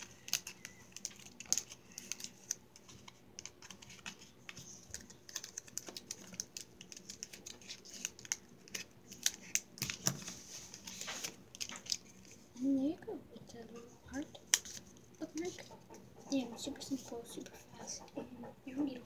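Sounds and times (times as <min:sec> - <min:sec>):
paper and tape clicks and crinkles: 0:00.0 - 0:12.7, 0:14.1 - 0:15.6.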